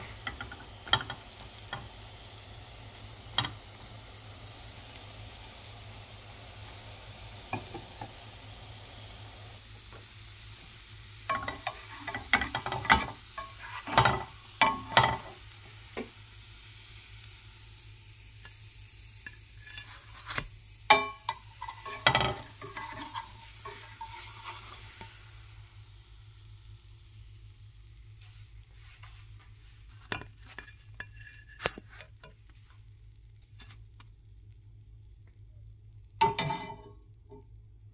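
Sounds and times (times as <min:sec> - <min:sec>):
bread sizzling in a frying pan: 0:00.0 - 0:37.9
utensil scraping and knocking pan: 0:11.3 - 0:15.4, 0:19.3 - 0:25.0, 0:30.0 - 0:32.4.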